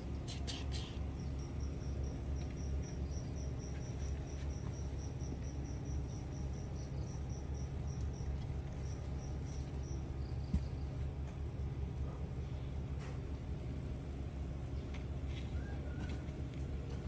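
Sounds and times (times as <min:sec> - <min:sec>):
cricket chirping: 0:00.0 - 0:11.0
low steady rumble: 0:00.0 - 0:17.0.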